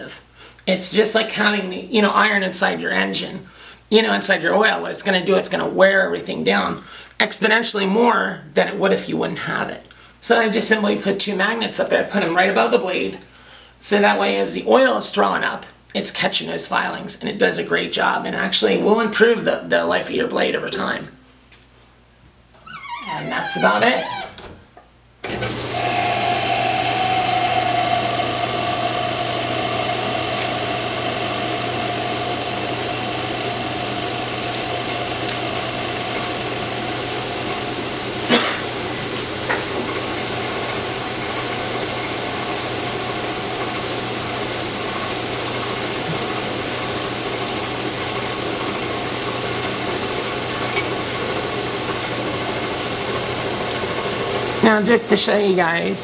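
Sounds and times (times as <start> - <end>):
saw motor humming and whining: 25.3 - 48.5.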